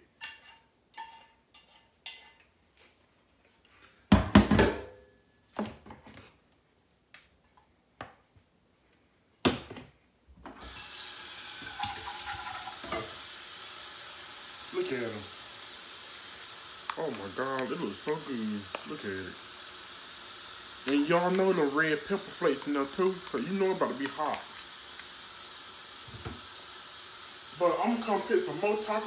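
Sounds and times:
faucet water running into sink: 10.6s - 29.0s
utensils clattering: 11.6s - 13.2s.

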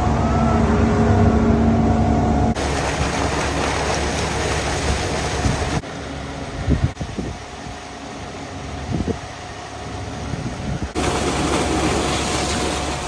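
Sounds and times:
truck engine humming: 0.0s - 13.0s
water pouring from pipe: 2.6s - 5.8s, 11.0s - 13.0s
water rushing into drum: 2.6s - 5.8s, 11.0s - 13.0s.

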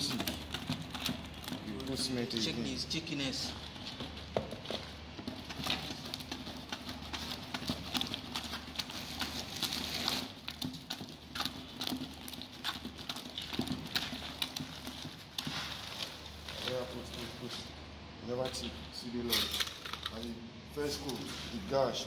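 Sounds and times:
stick scraping plastic bucket: 0.0s - 17.6s.

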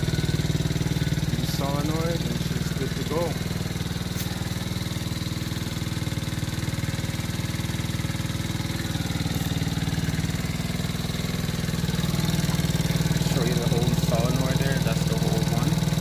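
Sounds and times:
small engine running: 0.0s - 16.0s.

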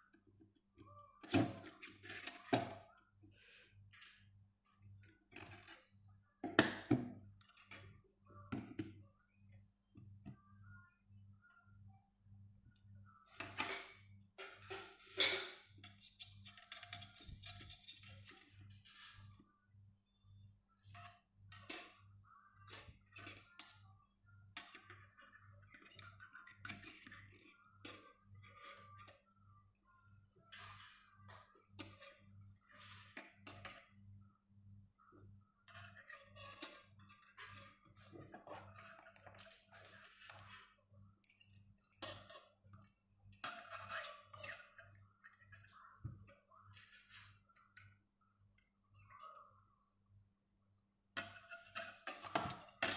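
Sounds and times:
wire clicking and scraping: 13.4s - 19.4s, 35.7s - 44.9s.

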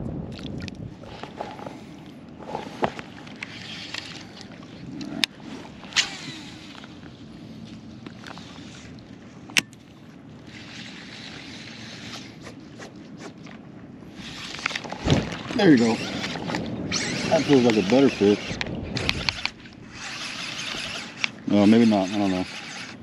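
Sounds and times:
wind on microphone: 0.0s - 9.0s, 14.0s - 23.0s
water lapping and sloshing: 0.2s - 23.0s.

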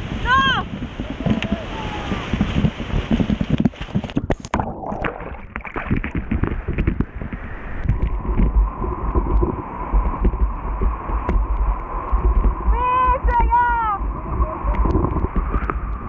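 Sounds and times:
whitewater rapids churning: 0.0s - 3.6s, 7.5s - 15.1s
water slapping microphone: 0.0s - 16.0s
wind buffeting microphone: 0.0s - 16.0s.

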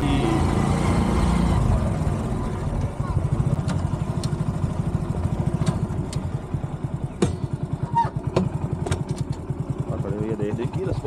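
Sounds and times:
motorcycle engine running: 0.0s - 11.0s
sharp clicks and knocks: 8.3s - 9.5s.

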